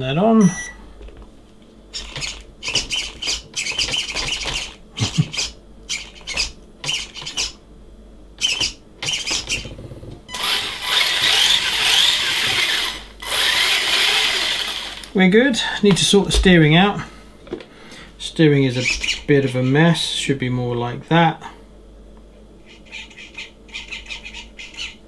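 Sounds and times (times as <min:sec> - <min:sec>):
steering servo whirring: 0:10.3 - 0:15.1
electric motor spinning drivetrain: 0:10.3 - 0:15.2.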